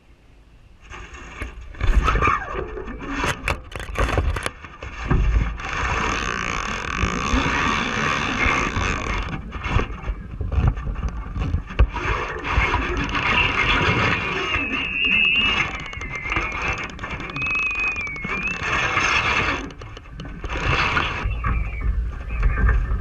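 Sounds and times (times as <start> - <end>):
handling knocks and clicks: 3.2 - 4.6
fishing reel whirring: 5.6 - 10.0, 11.4 - 21.3.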